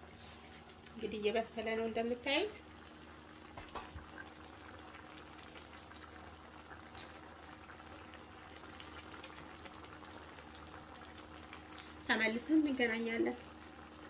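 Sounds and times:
low steady hum: 0.0s - 14.0s
stew bubbling: 2.7s - 12.0s.

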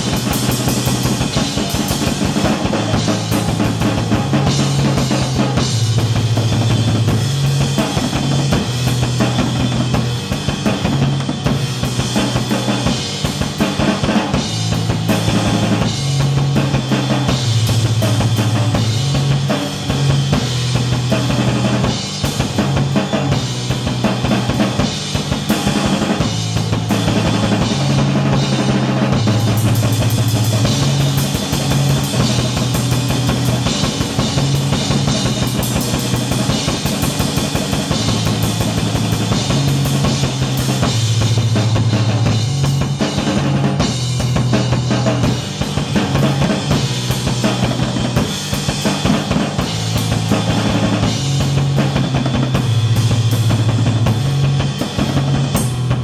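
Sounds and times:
fast dense drumming: 0.0s - 56.0s
low bass figure: 14.4s - 21.9s, 25.7s - 36.7s, 37.8s - 56.0s.

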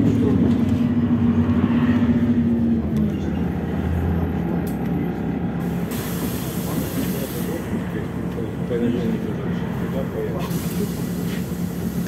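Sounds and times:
bus engine and road noise: 0.0s - 12.0s
hiss: 5.9s - 7.6s, 10.4s - 12.0s.

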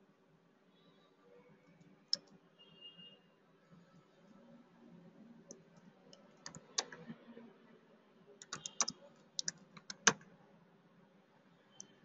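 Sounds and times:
keyboard typing clicks: 6.1s - 7.1s, 8.4s - 10.2s.

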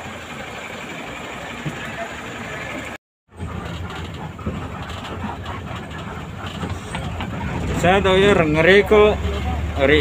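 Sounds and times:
bus engine running: 0.0s - 10.0s.

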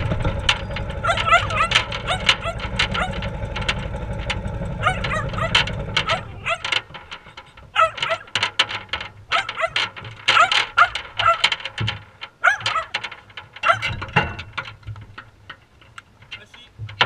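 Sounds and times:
dog whining and yipping: 0.5s - 3.2s, 4.8s - 6.7s, 7.8s - 8.3s, 9.3s - 11.5s, 12.4s - 13.0s, 13.6s - 14.0s.

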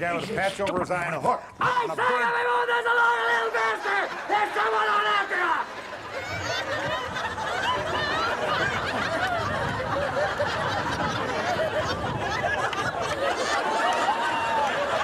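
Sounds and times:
audience laughing: 3.6s - 15.0s.

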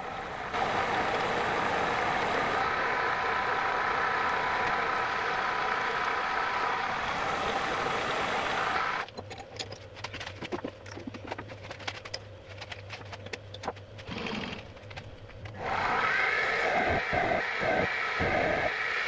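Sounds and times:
low motor hum: 0.0s - 19.0s
machine tool machining noise: 15.6s - 19.0s.

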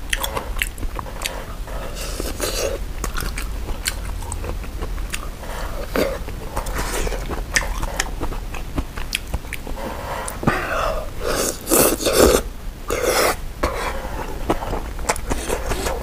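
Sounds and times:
chewing with small clicks: 0.0s - 1.4s, 2.1s - 5.3s, 5.9s - 10.4s
noodles slurped: 0.1s - 16.0s.

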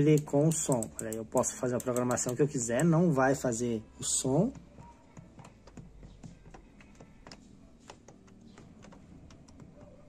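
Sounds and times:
control panel buttons clicking: 0.0s - 3.4s, 5.4s - 10.0s.

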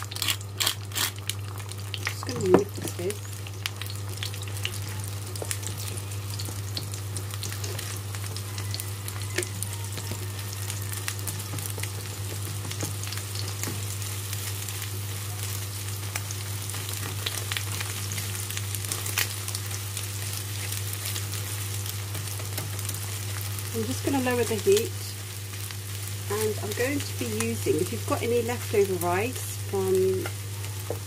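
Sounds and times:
eggs sizzling in oil: 0.0s - 31.0s.

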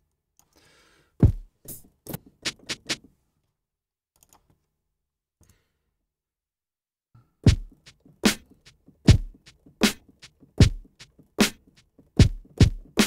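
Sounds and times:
kick drum hit: 1.2s - 1.5s, 7.5s - 7.8s, 9.1s - 9.4s, 10.6s - 10.9s, 12.2s - 13.0s
snare and hi-hat hits: 1.2s - 3.1s, 7.5s - 13.0s.

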